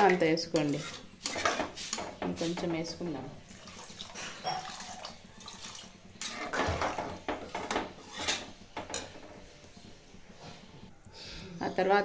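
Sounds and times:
spatula scraping and sloshing in pot: 0.3s - 9.5s.

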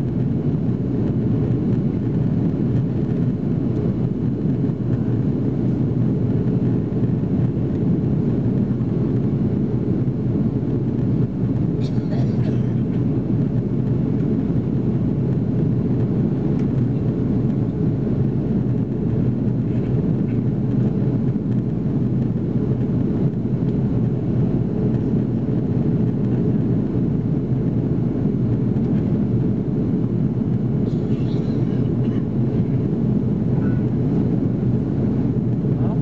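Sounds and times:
jet engine rumble: 0.0s - 36.0s.

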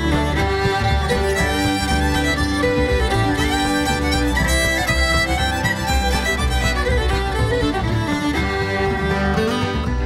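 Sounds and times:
fiddle tune with bass beat: 0.0s - 10.0s.

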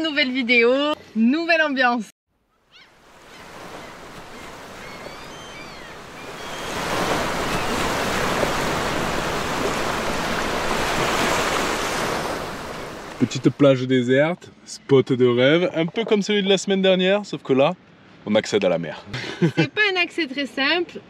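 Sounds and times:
faint high bird calls: 2.5s - 6.9s
surf washing over rocks: 3.0s - 13.6s.

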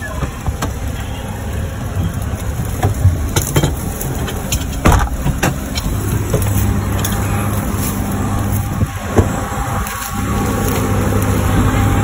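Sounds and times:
vehicle engine rumbling: 0.0s - 12.0s
knocks and thumps: 2.7s - 5.6s.

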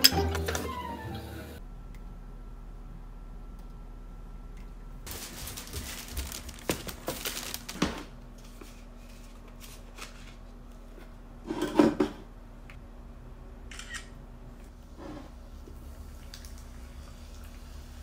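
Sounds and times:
paper bag rustling and crinkling: 5.1s - 10.5s.

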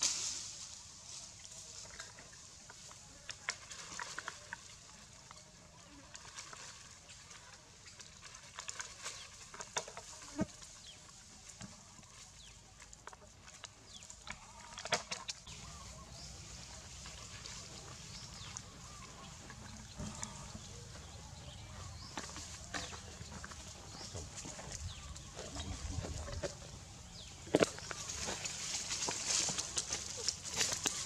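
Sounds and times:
dry leaves crackling: 0.0s - 3.0s, 15.5s - 31.0s.

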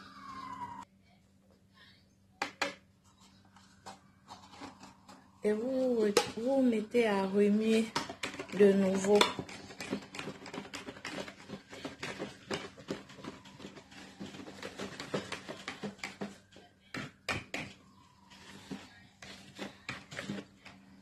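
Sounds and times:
whisk scraping plastic bowl: 3.8s - 6.5s, 7.5s - 21.0s.

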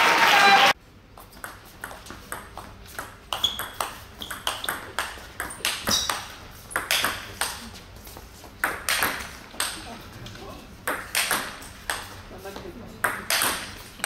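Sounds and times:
table tennis ball hits: 1.4s - 7.6s, 8.6s - 9.9s, 10.8s - 12.2s, 13.0s - 14.0s.

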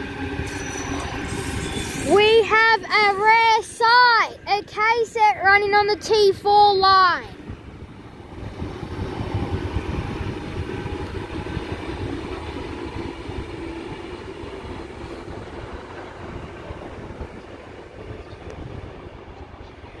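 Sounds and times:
train wheels rumbling on rails: 0.0s - 20.0s.

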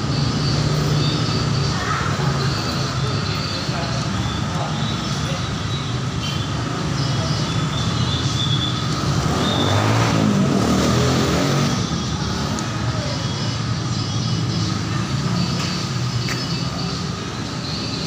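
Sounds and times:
street traffic: 0.0s - 18.0s
engine passing: 8.8s - 16.1s.

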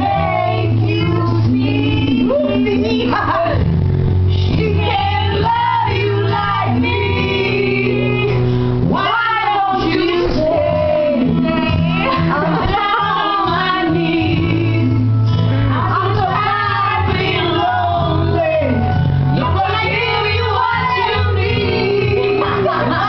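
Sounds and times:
two women singing: 0.0s - 3.7s, 4.3s - 23.0s
music with steady bass line: 0.0s - 23.0s.

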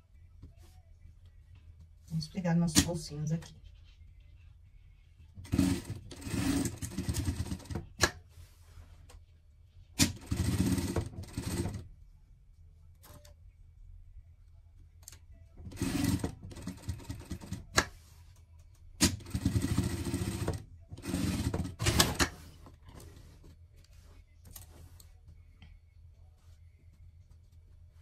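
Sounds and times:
sewing machine stitching fabric: 5.4s - 8.1s, 10.0s - 11.9s, 15.6s - 18.0s, 19.0s - 23.5s.

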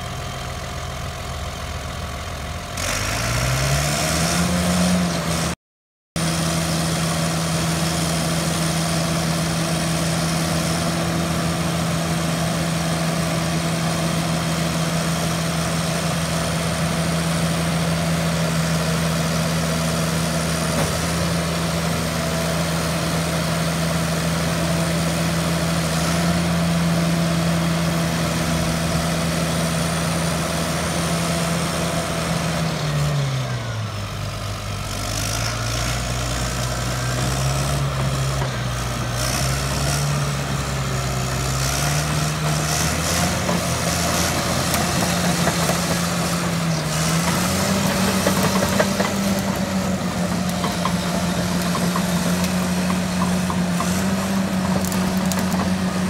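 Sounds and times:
diesel engine idling: 0.0s - 3.5s, 36.1s - 56.0s.

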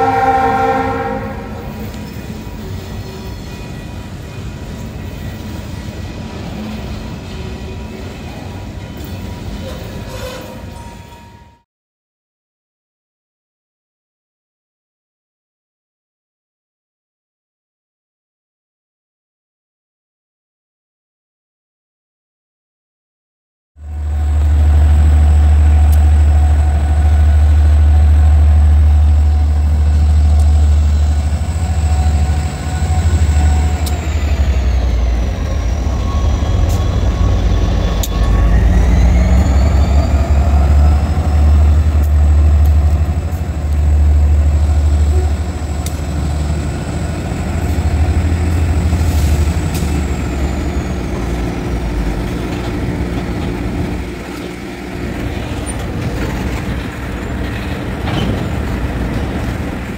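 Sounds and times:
diesel locomotive engines rumbling: 0.0s - 11.6s, 23.8s - 59.9s
freight cars rolling by: 23.8s - 59.9s.

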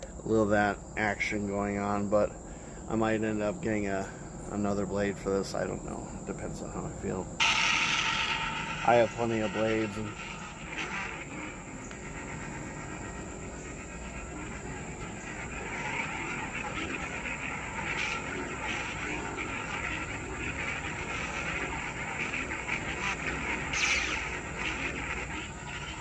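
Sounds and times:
insects chirping: 0.0s - 26.0s
lightsaber hum and swing: 7.4s - 26.0s.

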